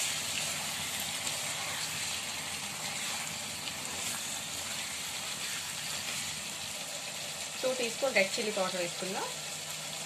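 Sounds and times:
spatula stirring in a pan: 0:00.0 - 0:07.6
meat sizzling in oil: 0:00.0 - 0:10.0.

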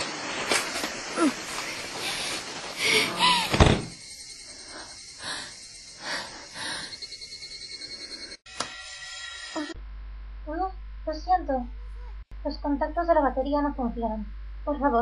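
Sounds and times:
heavy thud: 0:03.5 - 0:03.9.

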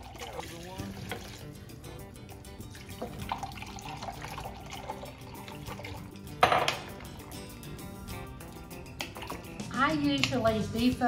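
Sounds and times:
liquid pouring into cup: 0:00.0 - 0:01.6, 0:02.6 - 0:09.6.

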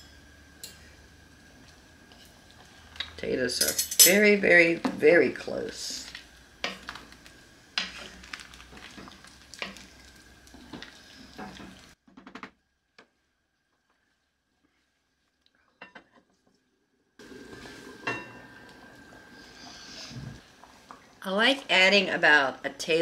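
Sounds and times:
wooden spoon stirring thick soup: 0:04.9 - 0:12.0.

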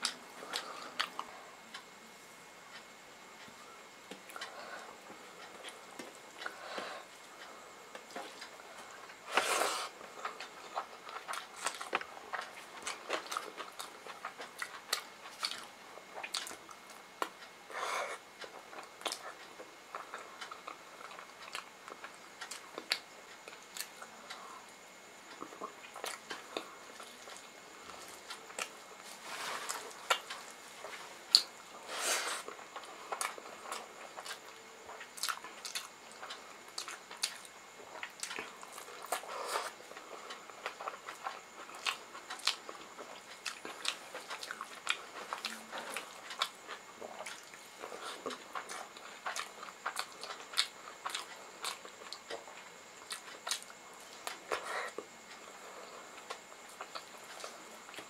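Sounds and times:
wet chewing and lip smacks: 0:10.3 - 0:17.3, 0:32.5 - 0:55.5.

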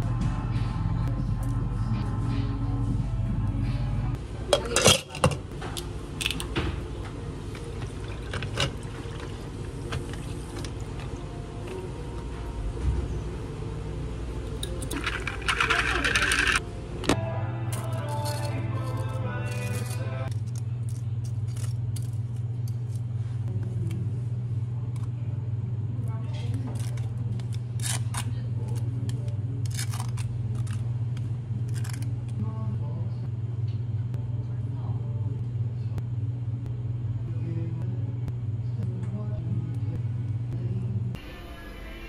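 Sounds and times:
background music: 0:00.0 - 0:04.2, 0:14.4 - 0:20.4
steady low hum: 0:00.0 - 0:42.0
ice cubes clinking: 0:14.7 - 0:16.6.

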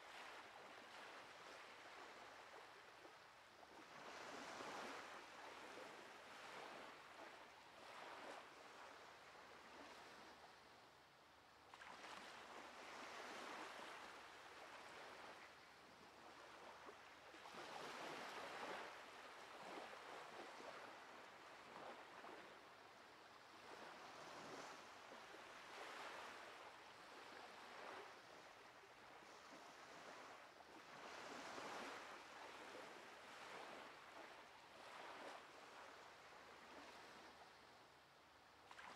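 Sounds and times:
waves washing on sandy shore: 0:11.6 - 0:37.9.

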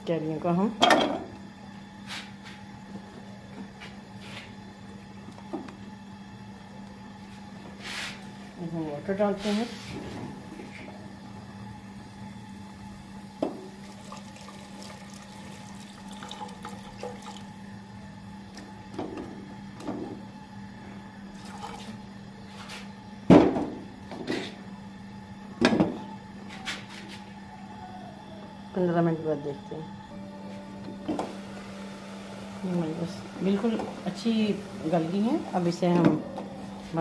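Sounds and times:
steady low hum: 0:00.0 - 0:37.0
water poured into metal pot: 0:13.8 - 0:17.5.

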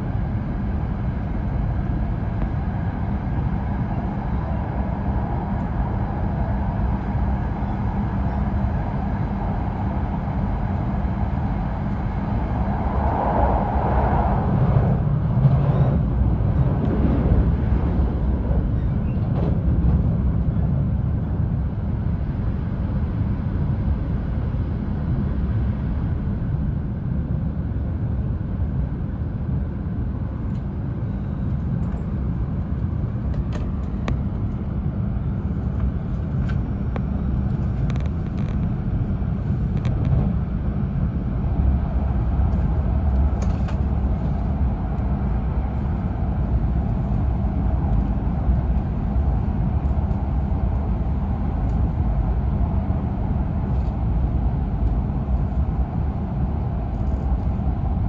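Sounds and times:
train interior low rumble: 0:00.0 - 0:58.0.

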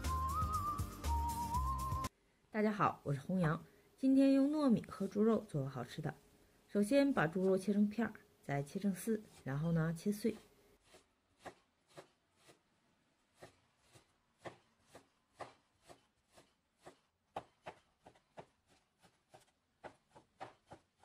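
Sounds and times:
cleaver chopping on wooden board: 0:13.4 - 0:21.0.

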